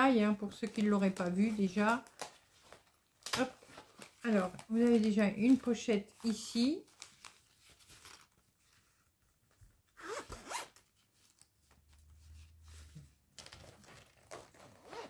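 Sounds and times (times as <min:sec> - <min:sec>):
zipper rasping open: 0:10.0 - 0:10.9, 0:13.6 - 0:15.0.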